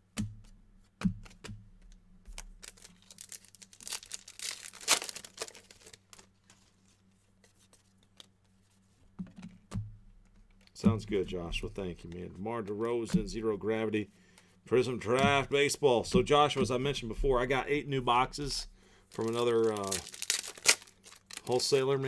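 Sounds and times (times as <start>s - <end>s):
cards tapping and knocking: 0.0s - 6.6s, 7.7s - 13.6s, 14.3s - 17.6s
card pack wrapper tearing: 2.3s - 6.8s, 19.1s - 22.0s.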